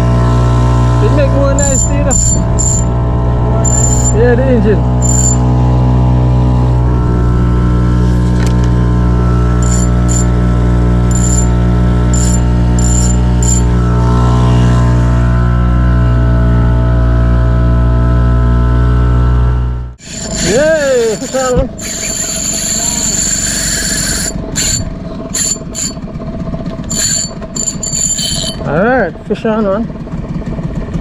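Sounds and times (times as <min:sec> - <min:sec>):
outboard motor droning: 0:00.0 - 0:31.0
short high chirps: 0:01.6 - 0:02.9, 0:03.5 - 0:04.2, 0:05.0 - 0:05.4, 0:11.1 - 0:11.6, 0:12.2 - 0:13.8, 0:26.9 - 0:28.7.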